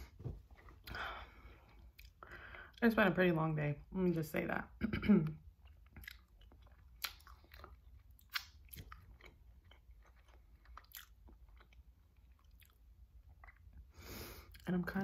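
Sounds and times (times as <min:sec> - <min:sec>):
wet mouth clicks and smacks: 0:05.7 - 0:09.1.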